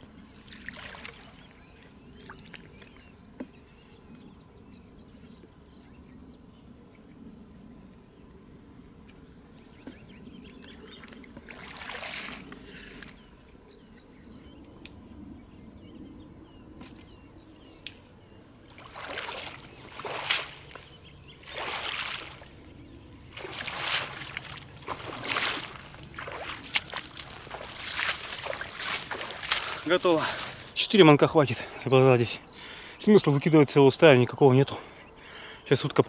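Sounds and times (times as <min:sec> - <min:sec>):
water sloshing and splashing: 0:00.0 - 0:03.1, 0:10.6 - 0:13.2, 0:18.7 - 0:30.8
splashing footsteps in water: 0:00.4 - 0:03.0, 0:10.9 - 0:13.1, 0:18.7 - 0:22.6, 0:23.3 - 0:30.8
bird chirping: 0:01.2 - 0:08.3, 0:08.9 - 0:11.3, 0:13.1 - 0:18.5, 0:26.8 - 0:33.4.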